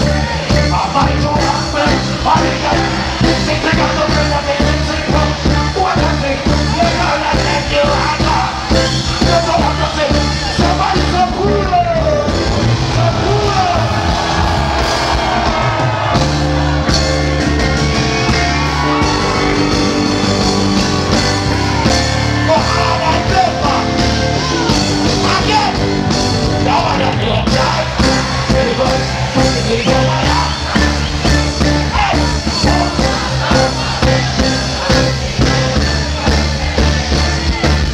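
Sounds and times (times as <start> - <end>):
man singing: 0.0 - 13.8, 22.4 - 25.8, 26.6 - 37.9
reggae band playing: 0.0 - 37.9.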